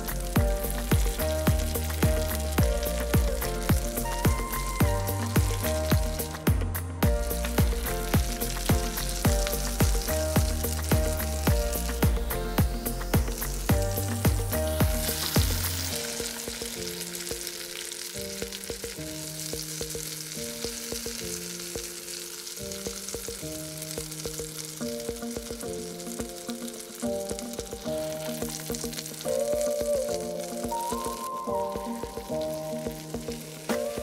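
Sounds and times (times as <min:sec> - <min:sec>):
background music: 0:00.0 - 0:34.0
meat sizzling on a grill: 0:00.0 - 0:34.0.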